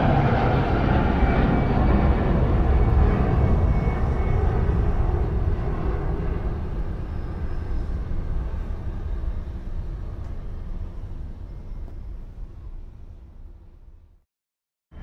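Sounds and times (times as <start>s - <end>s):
jet engines rumbling: 0.0s - 13.7s.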